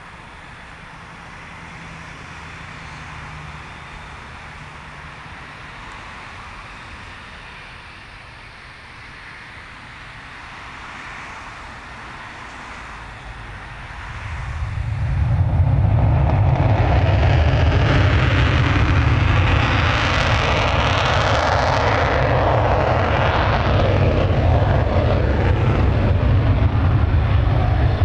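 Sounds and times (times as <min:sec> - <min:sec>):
jet engine roaring: 0:00.0 - 0:28.0.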